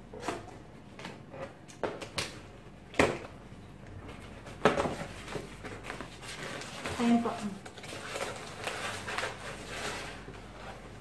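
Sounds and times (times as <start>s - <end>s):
paper tearing and crinkling: 6.0s - 11.0s.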